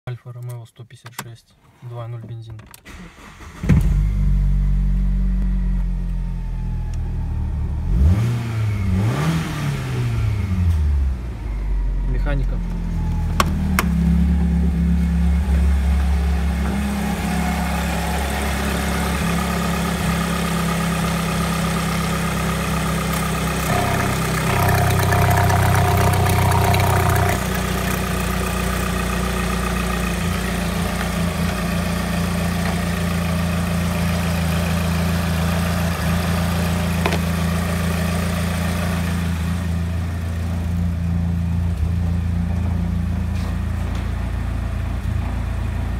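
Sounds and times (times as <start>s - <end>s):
car engine idling: 22.0s - 34.2s.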